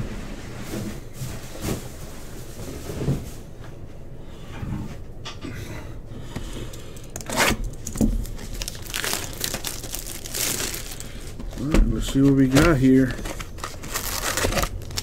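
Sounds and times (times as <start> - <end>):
plastic shrink-wrap tearing: 7.2 - 15.0.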